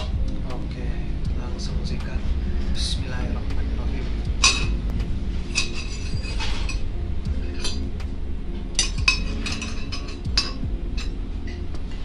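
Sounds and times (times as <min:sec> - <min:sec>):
cutlery clinking on ceramic plates: 0:05.6 - 0:06.8, 0:08.8 - 0:11.1.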